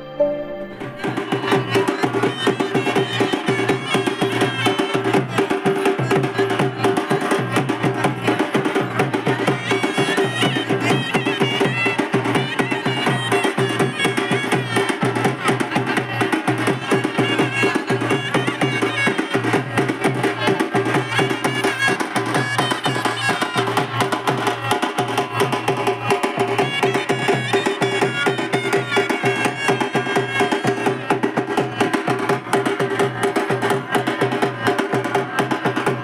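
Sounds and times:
held pitched melody line: 0.0s - 2.7s
band playing: 0.0s - 8.0s
fast steady drumming: 1.0s - 36.0s.

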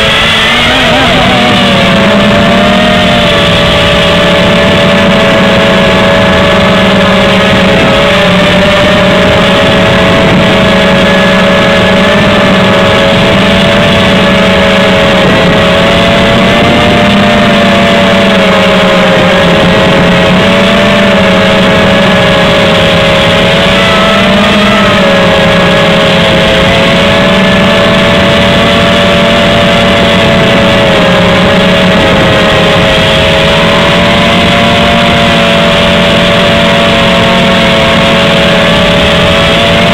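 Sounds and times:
quadcopter motors buzzing: 0.0s - 39.9s.

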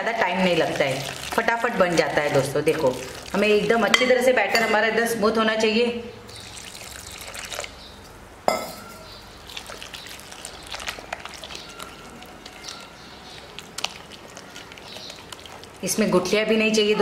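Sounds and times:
water poured into bowl: 0.6s - 3.8s, 6.3s - 7.8s, 9.4s - 15.9s
whisk stirring batter in glass: 9.5s - 16.2s.

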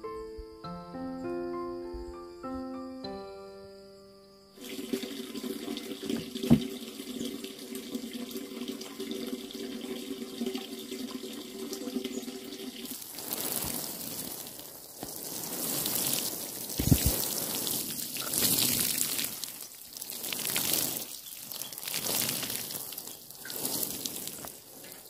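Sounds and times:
watering can sprinkling on soil: 4.6s - 25.0s
knock: 6.2s - 6.7s.

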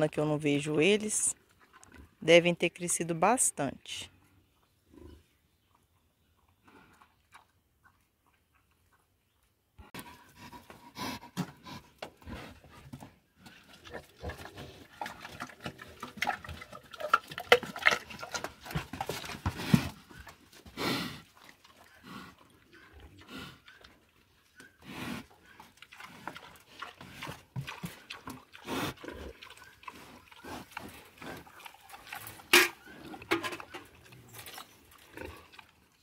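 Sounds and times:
pigs rooting in concrete trough: 10.0s - 36.0s
pigs grunting: 24.6s - 35.7s.

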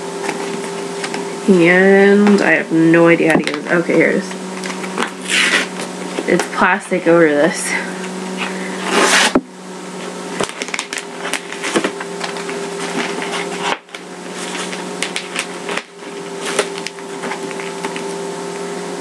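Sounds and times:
steady low hum: 0.0s - 19.0s
plastic wrap crinkling: 10.0s - 18.1s.

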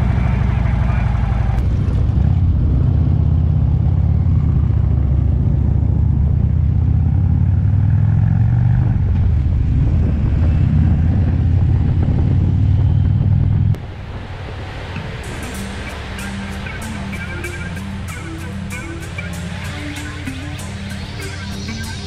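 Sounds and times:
motorcycle engine running: 0.0s - 13.8s.

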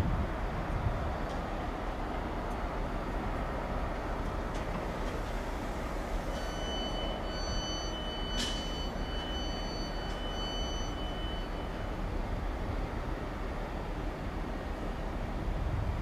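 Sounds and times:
train rumbling over points: 0.0s - 16.0s
high-pitched wheel squeal: 6.4s - 11.9s.

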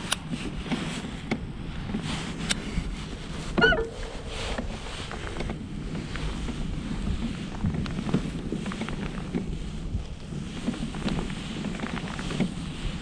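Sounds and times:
wind buffeting microphone: 0.0s - 13.0s
short wavering pitched call: 3.6s - 4.2s.

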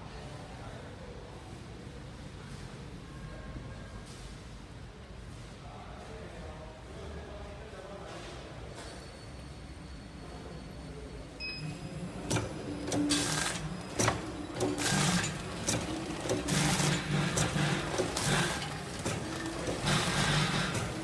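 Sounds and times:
packaging machine clacking: 12.1s - 21.0s.

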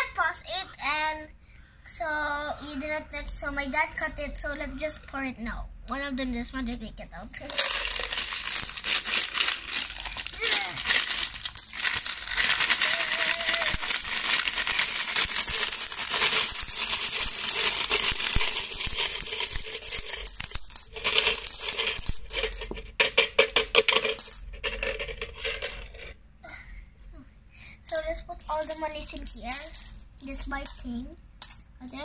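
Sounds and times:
coins clinking onto a pile: 7.5s - 26.2s, 27.9s - 30.8s, 31.4s - 32.0s.

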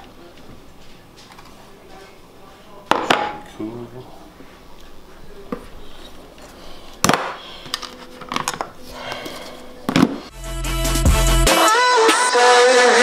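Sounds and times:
background music with heavy bass: 10.3s - 13.0s.

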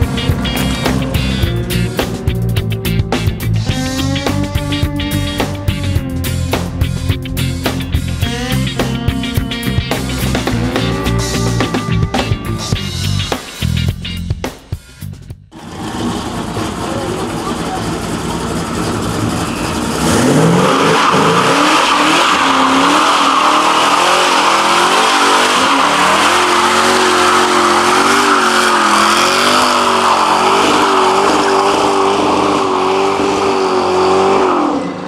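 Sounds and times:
car engine revving high: 0.0s - 12.8s, 15.5s - 35.0s
tyres squealing: 18.6s - 33.2s.

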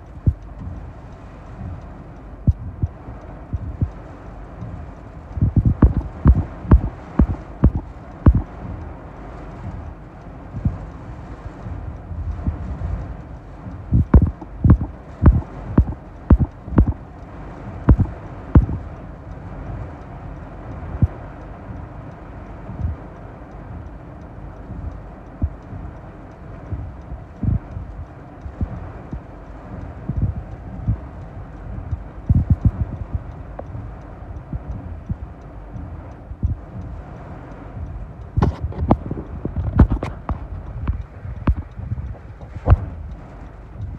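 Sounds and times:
heavy rain and wind on a car: 0.0s - 43.9s.

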